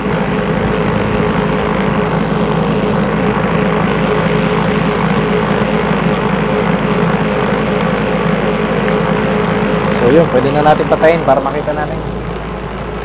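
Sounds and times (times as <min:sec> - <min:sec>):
electric polisher humming: 0:00.0 - 0:12.5.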